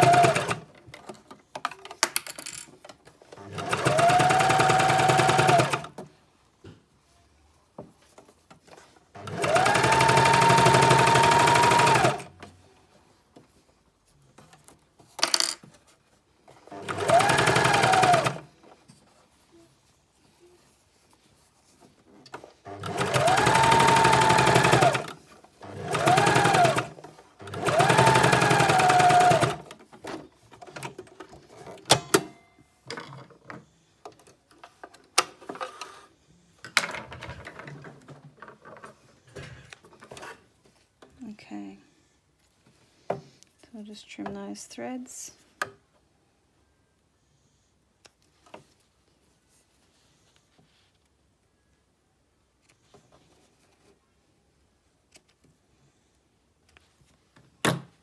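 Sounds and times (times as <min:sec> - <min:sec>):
sewing machine stitching: 0:00.0 - 0:00.8, 0:03.3 - 0:06.0, 0:09.1 - 0:12.4, 0:16.6 - 0:18.5, 0:22.6 - 0:29.8.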